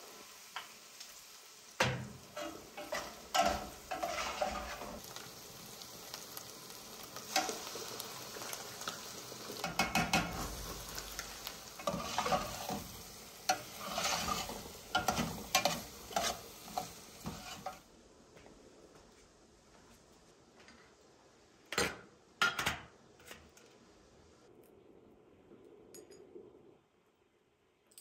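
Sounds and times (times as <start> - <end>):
meat sizzling in a pot: 0.0 - 17.9
metal spoon scraping a pot: 2.3 - 5.0, 11.8 - 12.9, 13.5 - 17.8.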